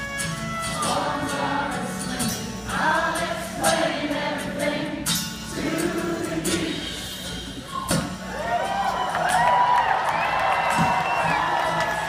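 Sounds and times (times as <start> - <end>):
acoustic guitars: 0.0 - 12.0
crowd singing along: 0.6 - 7.7.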